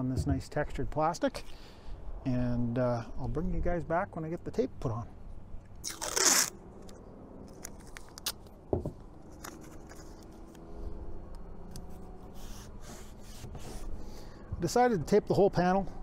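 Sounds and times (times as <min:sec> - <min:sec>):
tape ripping off roll: 0:05.8 - 0:06.6.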